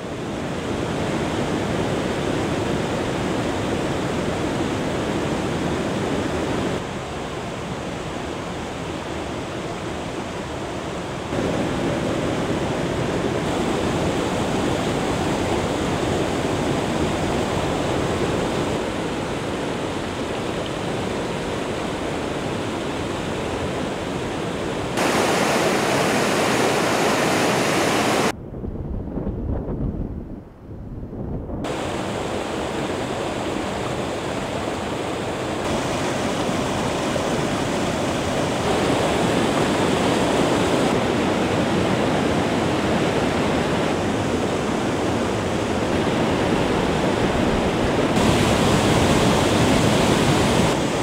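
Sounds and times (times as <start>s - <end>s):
waterfall rushing over rocks: 9.6s - 28.3s, 31.7s - 51.0s.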